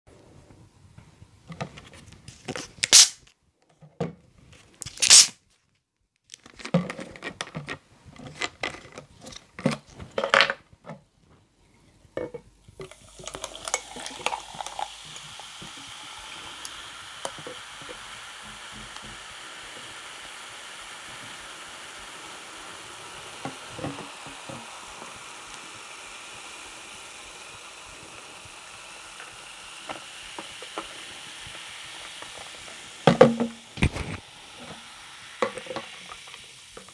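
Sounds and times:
soda bottle opening hiss: 2.4 - 3.3, 4.8 - 5.4, 12.8 - 36.9
soda fizzing: 2.8 - 3.2, 4.9 - 5.4, 12.7 - 36.9
soda pouring over ice: 12.8 - 36.9.

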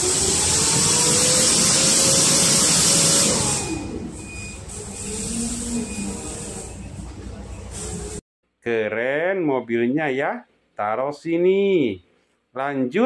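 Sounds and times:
forklift engine hissing: 0.0 - 8.2.

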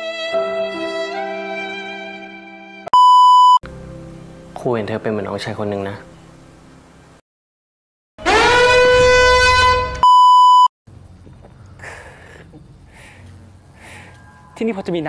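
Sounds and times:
censor bleep: 2.9 - 3.6, 10.0 - 10.7
breathy puffs: 11.5 - 14.3.

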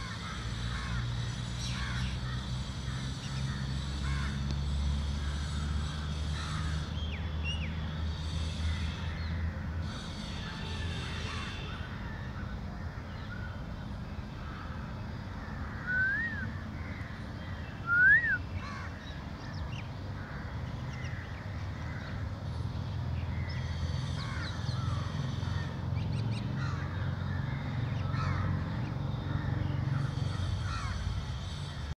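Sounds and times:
birds chirping: 0.0 - 32.0
loud bird call: 14.4 - 22.2.

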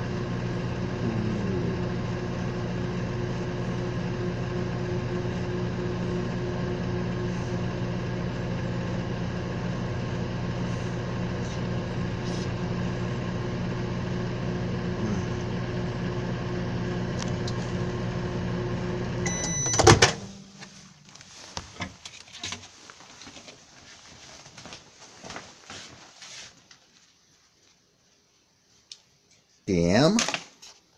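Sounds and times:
microwave oven humming: 0.0 - 22.0
short high beep: 19.3 - 19.8
microwave door clunk: 19.3 - 20.4.

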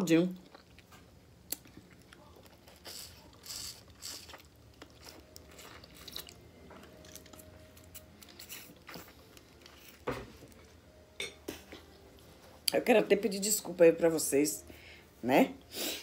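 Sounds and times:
person chewing food: 0.4 - 10.7.

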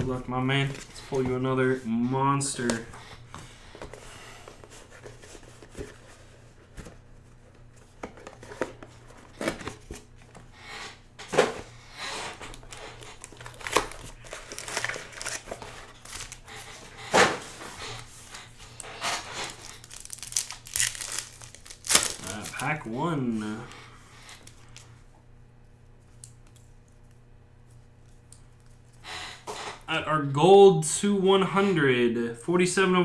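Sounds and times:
card packs rustling and crinkling: 0.0 - 10.5, 11.4 - 24.9.

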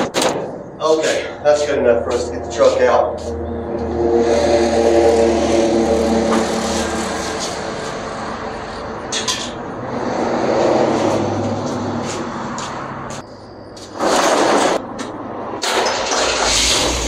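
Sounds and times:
machine droning: 2.1 - 9.2.

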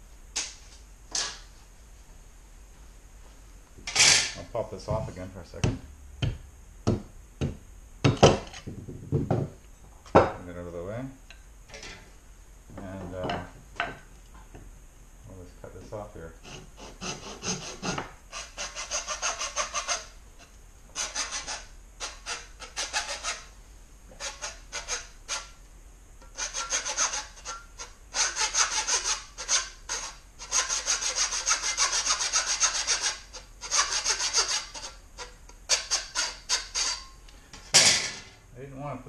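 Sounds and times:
hand saw cutting wood: 16.4 - 20.1, 21.0 - 23.5, 24.2 - 25.5, 26.3 - 37.1.

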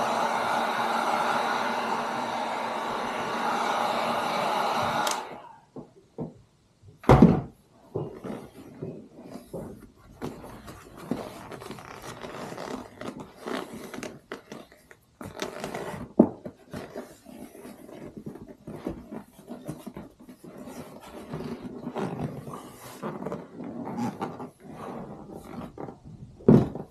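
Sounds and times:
sharp thunk: 7.0 - 7.5
vinyl cover rustling and scraping: 7.8 - 26.9.

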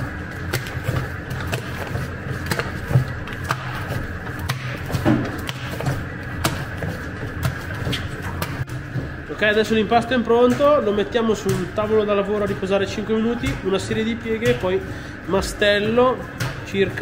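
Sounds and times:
dough mixer motor humming: 0.0 - 17.0
mixer knocking: 0.0 - 17.0.

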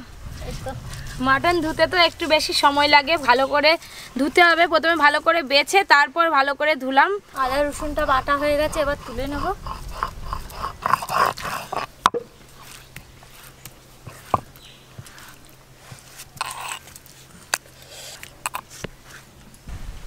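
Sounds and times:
fingers scraping wet paste: 7.4 - 11.9, 12.6 - 19.3.

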